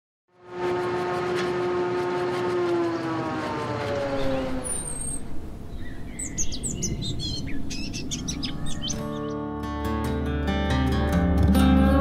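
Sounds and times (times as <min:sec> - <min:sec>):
engine-like hum: 0:00.3 - 0:09.3
birds chirping: 0:02.8 - 0:09.5.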